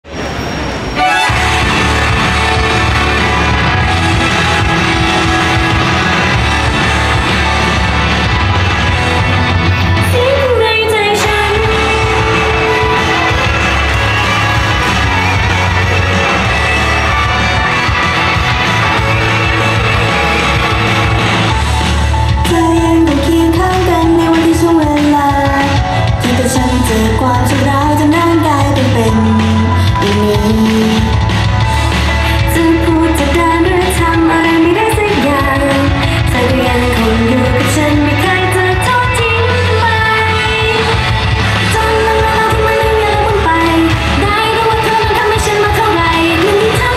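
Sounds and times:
upbeat pop song: 0:01.2 - 0:46.9
female voices singing: 0:10.0 - 0:17.2, 0:32.4 - 0:46.9.

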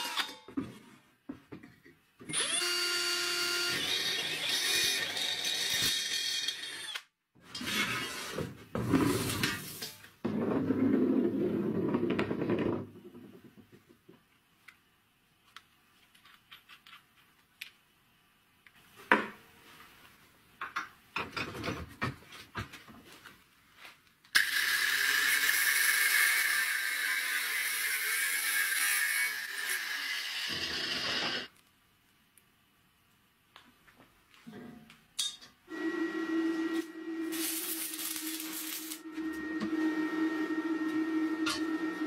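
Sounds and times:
angle grinder cutting metal pipe: 0:00.0 - 0:00.4, 0:02.3 - 0:08.1, 0:24.4 - 0:31.5, 0:35.7 - 0:42.0.

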